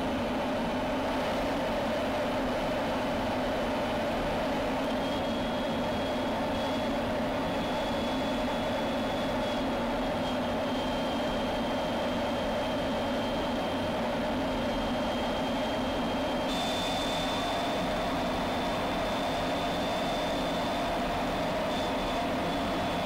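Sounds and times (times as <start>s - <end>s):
high steady whine: 0.0s - 23.0s
jet engine and airflow drone: 0.0s - 23.0s.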